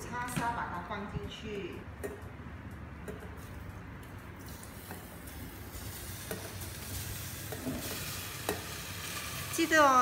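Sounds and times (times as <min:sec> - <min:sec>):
food sizzling: 0:04.4 - 0:10.0.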